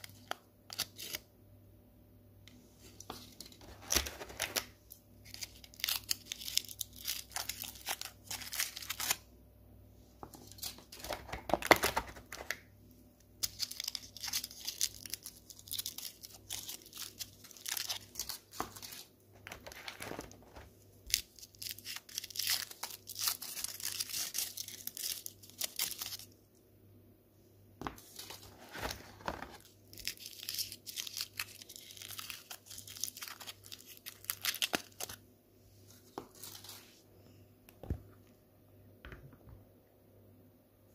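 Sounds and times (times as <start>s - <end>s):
foil wrappers crinkling and tearing: 3.4s - 9.2s, 13.4s - 26.3s, 28.2s - 35.2s.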